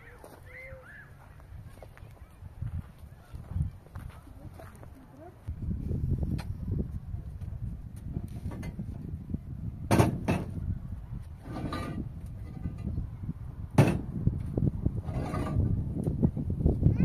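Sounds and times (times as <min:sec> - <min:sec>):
low rustling and clattering: 0:08.2 - 0:09.2, 0:11.2 - 0:13.0, 0:13.8 - 0:16.2
sharp knocks: 0:09.9 - 0:10.6.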